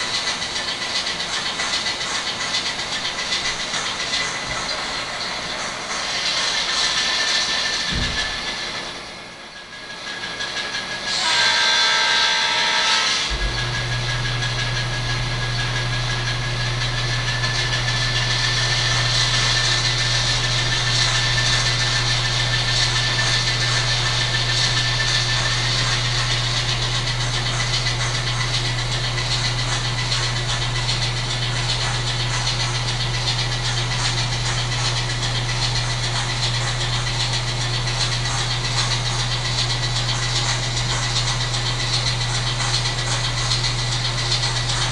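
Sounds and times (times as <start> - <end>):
model train horn blast: 11.1 - 13.3
low diesel engine hum: 13.3 - 44.9.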